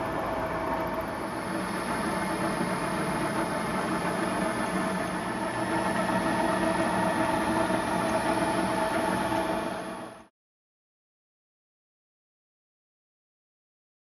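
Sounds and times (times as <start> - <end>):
milling machine running: 0.0 - 10.3.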